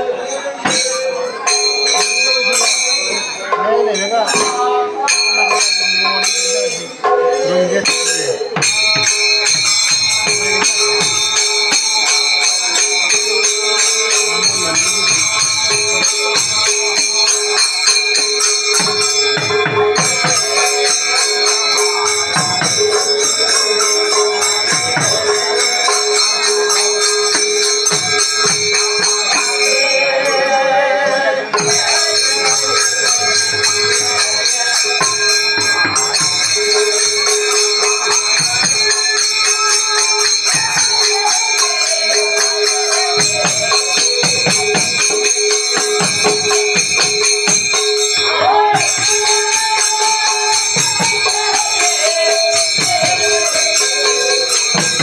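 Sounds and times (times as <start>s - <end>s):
metal cymbals jingling: 0.0s - 55.0s.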